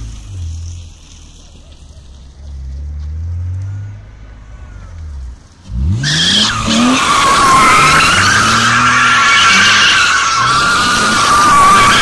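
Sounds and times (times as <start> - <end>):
car engine revving: 0.0 - 12.0
tyres squealing: 6.0 - 12.0.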